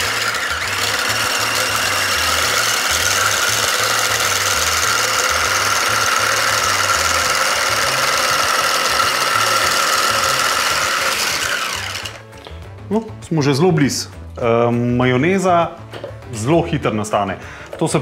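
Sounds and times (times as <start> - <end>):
stick blender motor whine: 0.0 - 12.3.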